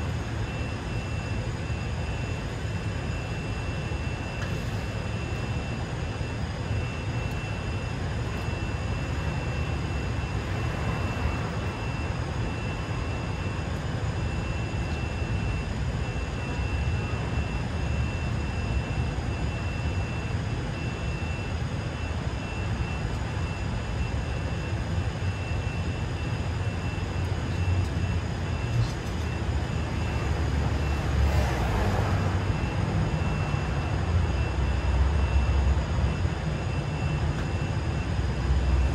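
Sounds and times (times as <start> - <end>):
traffic rumble: 27.0 - 36.6.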